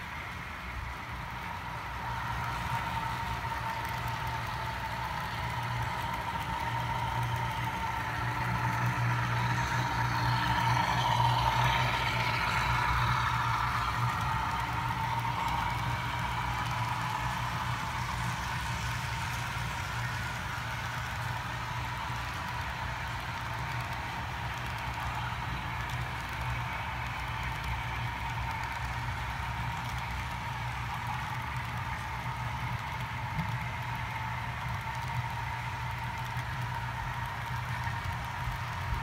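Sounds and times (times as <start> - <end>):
model train running on track: 0.0 - 39.0.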